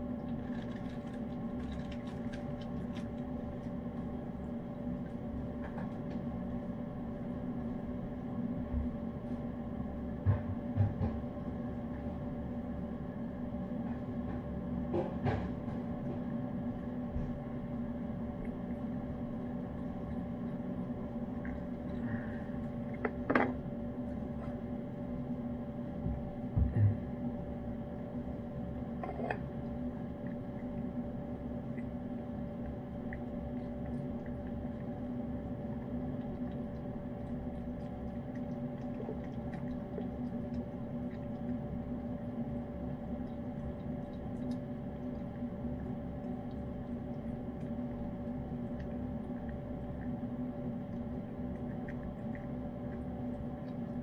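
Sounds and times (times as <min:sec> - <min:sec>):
cat chewing and licking: 0:00.0 - 0:09.5, 0:14.9 - 0:23.2, 0:23.9 - 0:54.0
steady background hum: 0:00.0 - 0:54.0.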